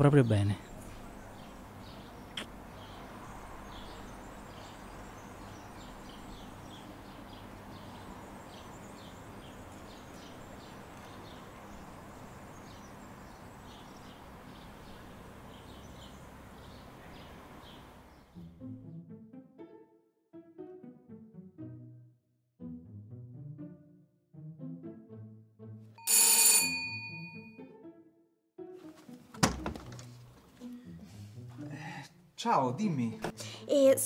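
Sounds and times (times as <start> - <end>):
small birds chirping: 0.1 - 18.4.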